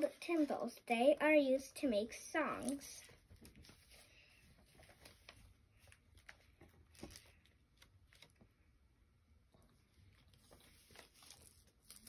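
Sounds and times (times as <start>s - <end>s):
paper pages rustling: 2.6s - 8.5s, 9.8s - 12.0s.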